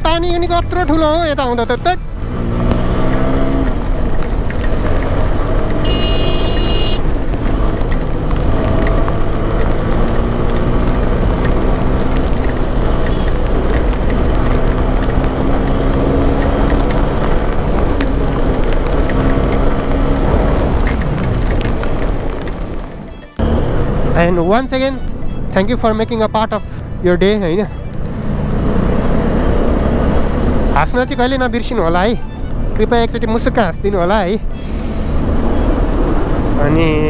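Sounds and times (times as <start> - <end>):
motorcycle engine revving: 0.0 - 37.0
brief high tone: 5.8 - 7.0
wind and wet tyre spray hiss: 34.6 - 37.0.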